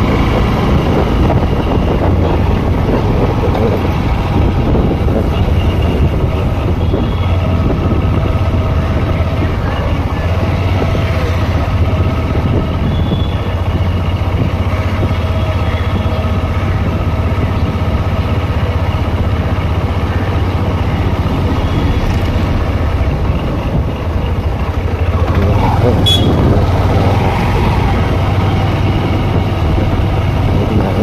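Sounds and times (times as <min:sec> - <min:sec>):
wind rushing: 0:00.0 - 0:09.1, 0:19.0 - 0:25.0
motorcycle engine running: 0:00.0 - 0:31.0.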